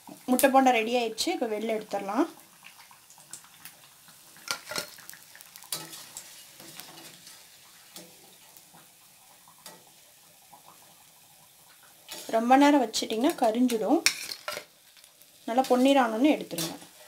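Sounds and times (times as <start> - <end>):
food sizzling in hot oil: 0.0 - 17.0
metal spoon scraping a pan: 4.4 - 8.6, 12.1 - 12.4, 13.1 - 17.0.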